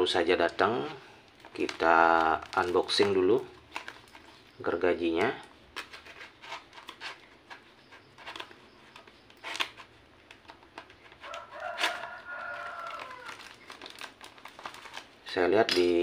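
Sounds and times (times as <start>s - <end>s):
plastic wrap crinkling: 0.0s - 16.0s
knife cutting packing tape: 5.1s - 15.1s
rooster crowing: 11.2s - 13.6s.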